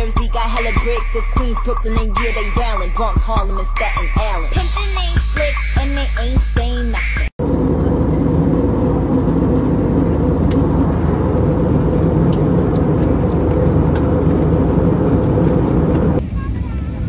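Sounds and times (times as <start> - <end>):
constant low hum: 0.0 - 17.0
airliner cabin noise: 7.4 - 17.0.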